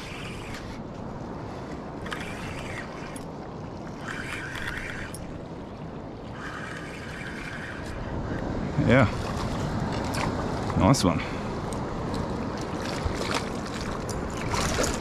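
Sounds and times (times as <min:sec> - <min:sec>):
fishing reel winding: 0:00.0 - 0:00.8, 0:02.0 - 0:03.3, 0:04.0 - 0:05.4, 0:06.3 - 0:08.0
water noise: 0:00.0 - 0:15.0
wind: 0:00.0 - 0:15.0.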